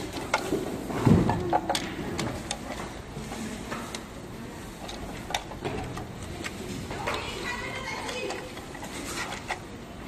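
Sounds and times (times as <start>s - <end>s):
plastic clicks and knocks: 0.0s - 4.2s, 4.8s - 7.4s.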